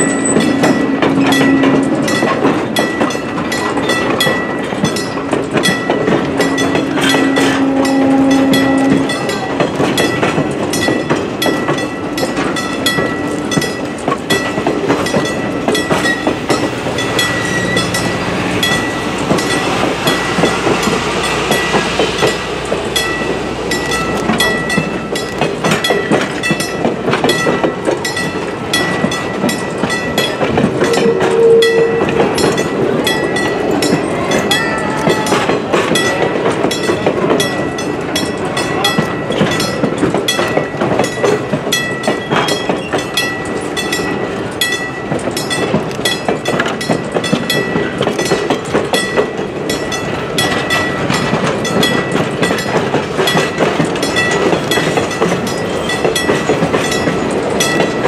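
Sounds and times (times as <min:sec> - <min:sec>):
brief lower tone: 0:00.0 - 0:02.1, 0:30.8 - 0:32.1
high-pitched ring: 0:00.0 - 0:03.2, 0:03.9 - 0:09.5, 0:30.8 - 0:35.0
train wheels clicking over rail joints: 0:00.0 - 0:58.0.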